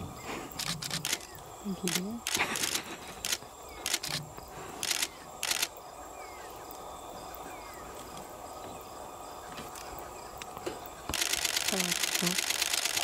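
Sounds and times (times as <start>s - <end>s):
low background noise: 0.0s - 13.0s
camera shutter clicks: 0.6s - 1.3s, 1.9s - 4.2s, 4.8s - 5.7s, 11.1s - 13.0s.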